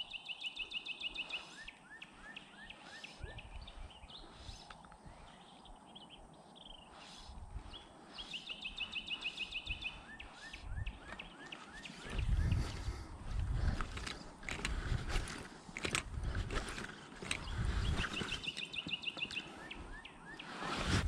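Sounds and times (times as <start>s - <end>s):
bird trill: 0.0s - 12.8s, 16.7s - 20.7s
birds chirping: 0.0s - 20.9s.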